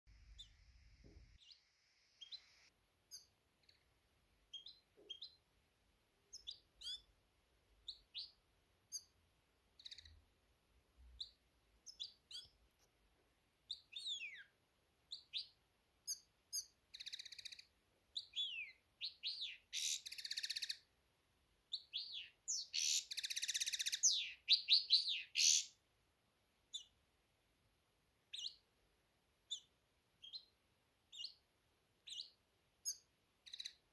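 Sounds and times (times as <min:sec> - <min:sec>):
finches chirping and singing: 0:04.5 - 0:05.4, 0:06.3 - 0:07.1, 0:09.8 - 0:10.2, 0:11.2 - 0:12.6, 0:13.7 - 0:14.5, 0:15.2 - 0:20.8, 0:21.7 - 0:25.7, 0:29.5 - 0:30.5, 0:31.1 - 0:31.4, 0:32.1 - 0:33.9.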